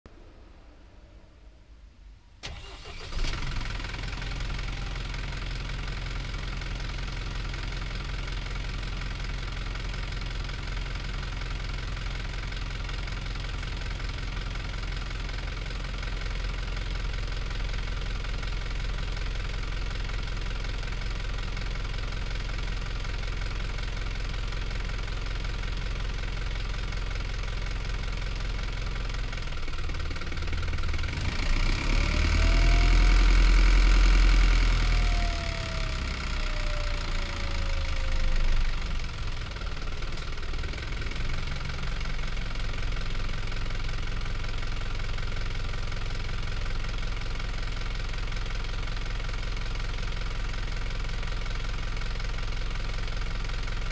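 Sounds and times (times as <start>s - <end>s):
bus diesel engine idling and revving: 2.4s - 53.9s
engine whine: 31.2s - 41.0s.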